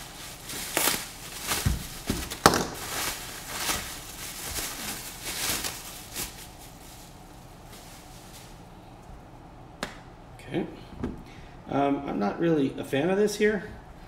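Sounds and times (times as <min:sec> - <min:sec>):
bubble wrap crinkling: 0:00.0 - 0:08.9.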